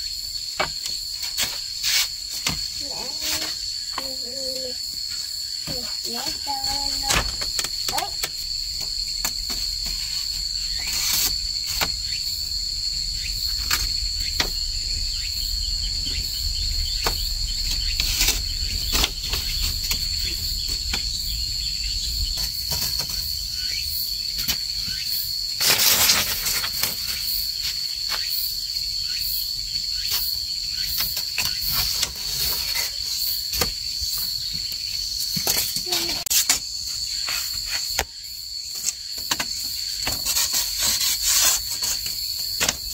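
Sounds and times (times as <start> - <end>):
high-pitched insect chorus: 0.0 - 42.9
rustle: 0.6 - 3.8, 8.8 - 28.5, 38.7 - 42.9.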